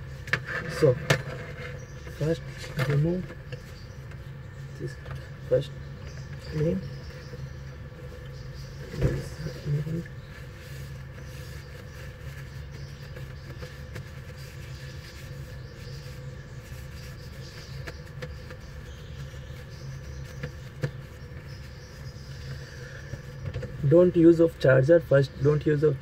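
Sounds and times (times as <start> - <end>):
low mechanical hum: 0.0 - 26.0.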